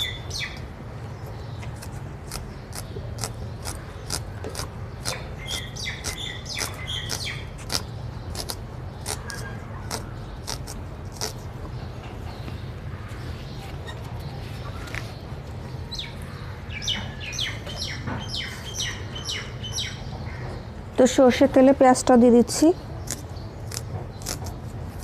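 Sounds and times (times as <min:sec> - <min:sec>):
small birds chirping: 0:00.0 - 0:25.0
scissors snipping onion: 0:01.8 - 0:11.4, 0:23.0 - 0:24.6.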